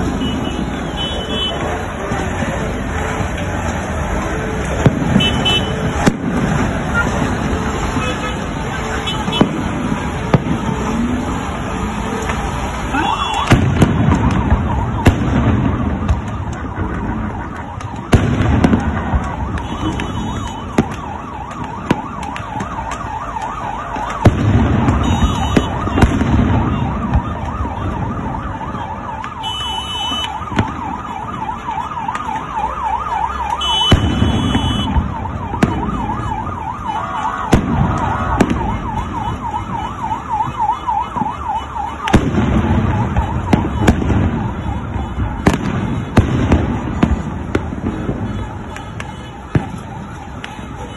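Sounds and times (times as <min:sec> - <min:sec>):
emergency siren warbling: 0:00.0 - 0:50.9
street crowd noise: 0:00.0 - 0:50.9
sharp bangs: 0:12.1 - 0:32.6, 0:33.4 - 0:50.8
heavy booming bursts: 0:37.4 - 0:39.8.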